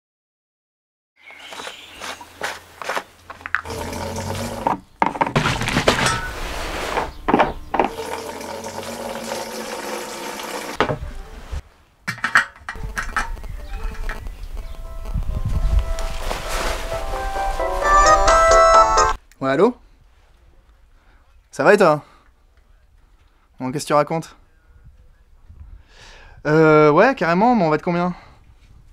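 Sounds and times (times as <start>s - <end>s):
fuel pouring into a tank: 3.7s - 4.8s, 7.9s - 10.8s
caps twisting with clicks: 12.1s - 14.2s.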